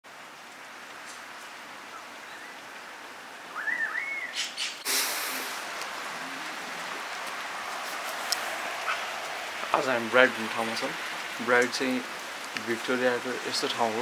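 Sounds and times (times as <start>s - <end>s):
rain hiss: 0.1s - 14.0s
bird calling: 1.8s - 9.8s.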